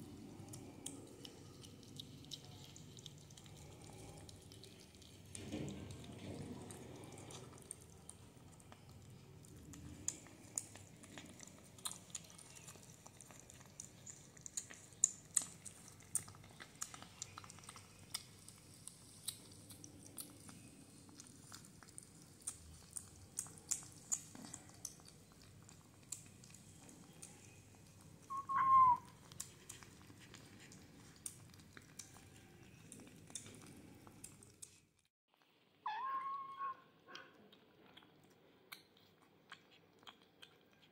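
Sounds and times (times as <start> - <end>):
kittens chewing and licking: 0.0 - 40.9
kitten mewing: 35.9 - 37.3.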